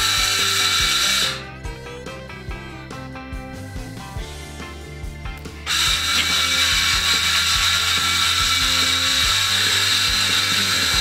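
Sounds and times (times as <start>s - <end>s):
power saw cutting plywood: 0.0s - 1.5s, 5.6s - 11.0s.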